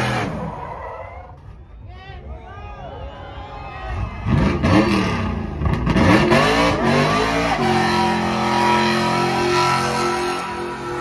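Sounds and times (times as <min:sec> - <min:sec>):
car engine revving hard: 0:04.3 - 0:11.0.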